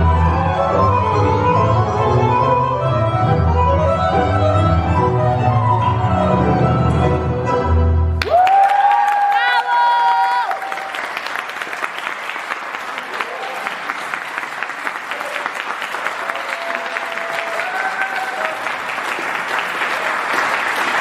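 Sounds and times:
audience applauding: 8.2s - 21.0s.

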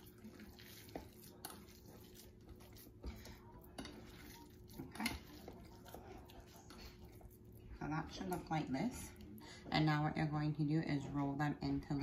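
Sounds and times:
meat squishing: 0.0s - 7.9s.

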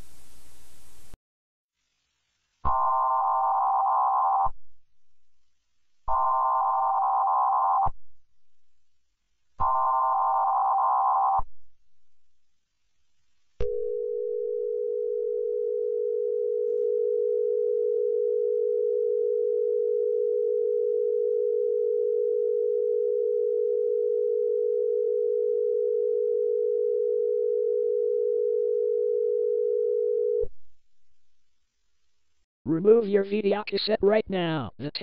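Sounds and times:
steady alarm tone: 9.6s - 11.4s.

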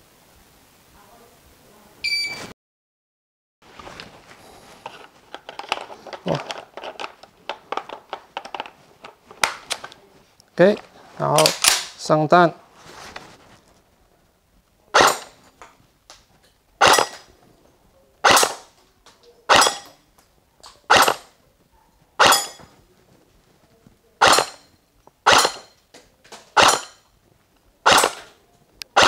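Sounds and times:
airsoft gun shots: 14.9s - 15.4s, 16.8s - 17.3s, 18.2s - 18.7s, 19.5s - 19.9s, 20.8s - 21.3s, 22.2s - 22.6s, 24.2s - 25.7s, 26.5s - 27.0s, 27.8s - 28.3s.

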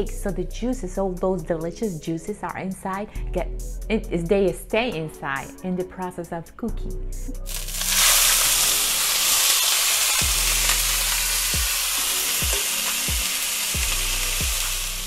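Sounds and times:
steak sizzling in hot pan: 7.4s - 15.0s.

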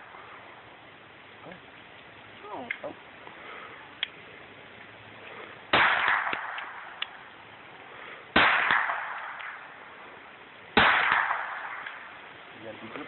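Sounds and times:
pistol shots: 5.7s - 7.0s, 8.3s - 9.7s, 10.8s - 12.1s.

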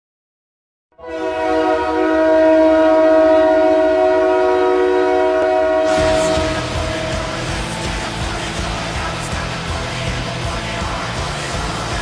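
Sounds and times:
hockey goal horn blast: 1.0s - 7.8s.

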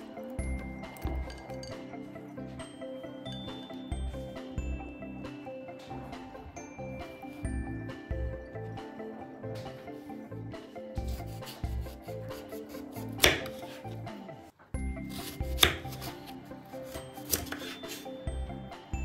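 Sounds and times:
background music: 0.0s - 19.0s
knife cutting fruit: 11.0s - 14.0s, 15.0s - 18.1s.

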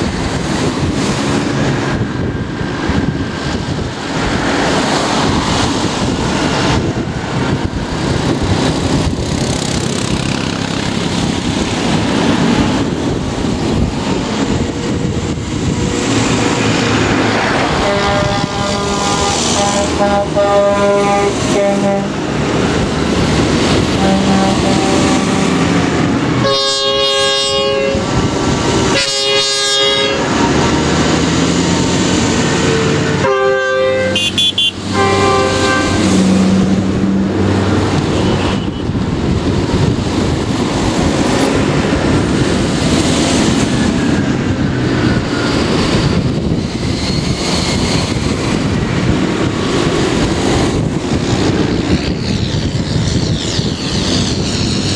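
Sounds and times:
tractor diesel engines: 0.0s - 54.9s
horn blasts: 17.8s - 22.2s, 23.9s - 25.8s, 26.4s - 28.1s, 28.9s - 30.6s, 32.7s - 36.4s.

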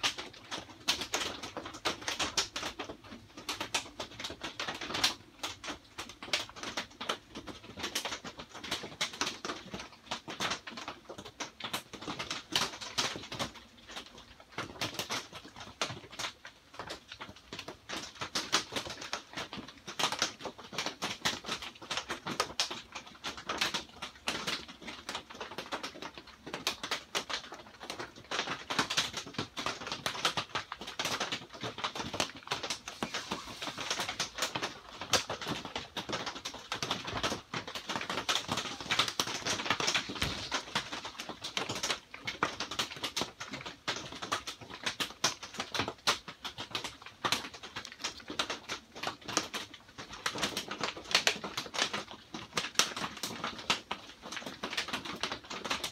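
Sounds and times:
rain on a plastic roof: 0.0s - 55.9s.

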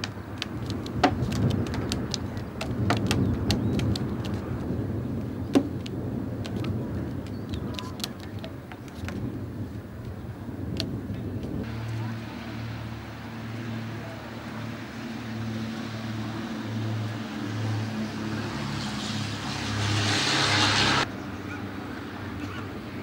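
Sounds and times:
rushing noise: 11.6s - 21.1s
distant engine drone: 11.6s - 23.0s.

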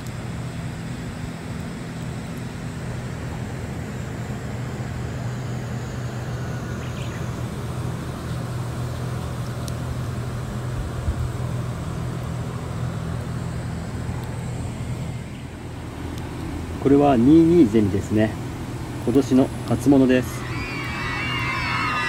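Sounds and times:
low mechanical hum: 0.0s - 22.0s
faint high whine: 16.8s - 22.0s.

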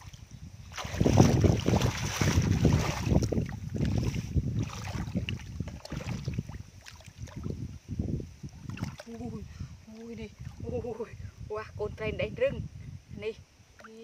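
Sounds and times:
wind rumbling on microphone: 0.0s - 14.0s
feet squelching through mud: 0.7s - 7.1s.

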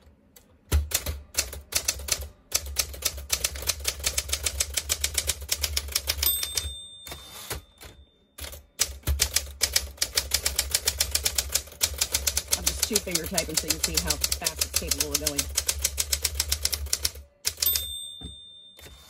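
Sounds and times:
typewriter bell ringing: 6.0s - 8.6s, 17.5s - 19.0s
typewriter keys clacking: 8.4s - 17.8s.

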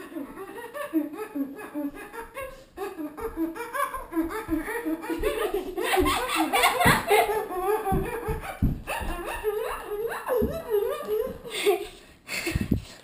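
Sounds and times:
children laughing and giggling: 0.0s - 12.8s
low thumps: 3.2s - 11.5s.

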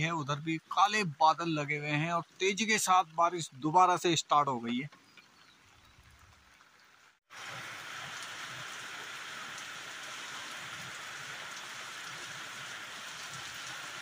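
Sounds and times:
heavy rain on gravel and trees: 7.3s - 14.0s.

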